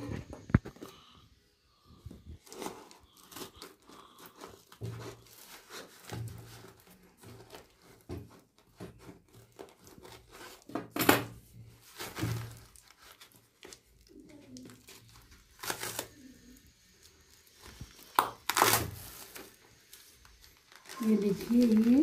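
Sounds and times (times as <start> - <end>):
paper crinkling and tearing: 2.4 - 10.9, 11.6 - 22.0
scissors cutting paper and tape: 14.8 - 16.6, 18.1 - 19.0.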